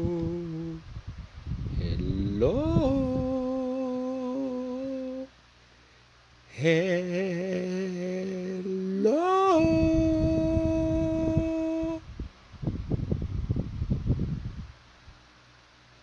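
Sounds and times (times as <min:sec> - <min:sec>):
person singing long notes: 0:00.0 - 0:00.8, 0:01.8 - 0:05.3, 0:06.5 - 0:12.0.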